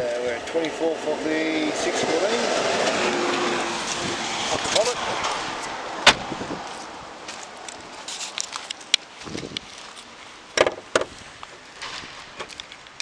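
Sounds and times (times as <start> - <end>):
car latch clack: 6.0 - 6.3, 10.6 - 11.1.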